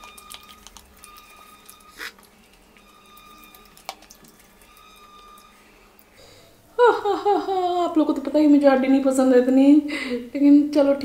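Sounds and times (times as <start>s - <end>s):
soft mouth noises: 1.8s - 2.9s.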